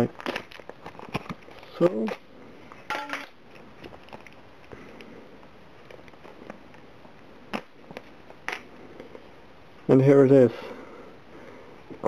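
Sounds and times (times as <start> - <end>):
packaging rustling: 0.0 - 2.8, 3.4 - 4.8.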